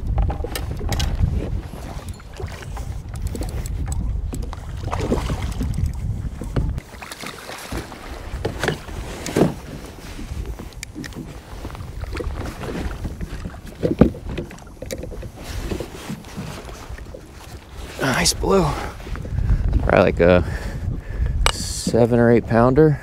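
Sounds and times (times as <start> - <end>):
water lapping against kayak hull: 0.0 - 23.0
wind buffeting microphone: 0.0 - 23.0
gear knocking on hull: 7.6 - 16.6.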